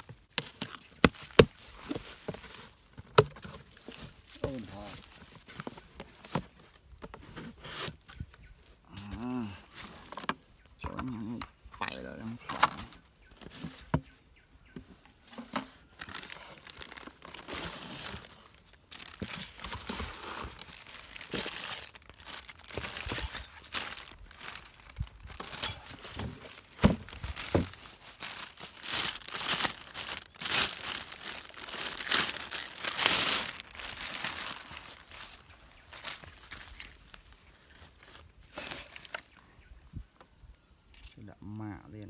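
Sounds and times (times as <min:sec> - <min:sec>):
plastic bags crinkling: 0:16.0 - 0:37.8.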